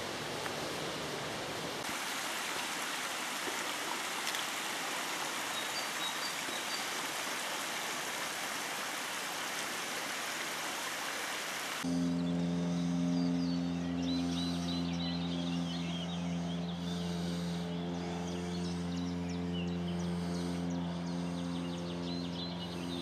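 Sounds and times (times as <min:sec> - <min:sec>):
stream running over stones: 0:00.0 - 0:11.9.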